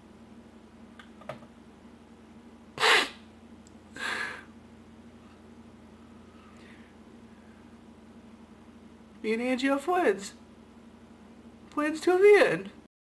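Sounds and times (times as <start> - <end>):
faint steady hum: 0.0 - 12.9
person breathing sharply: 4.0 - 4.5.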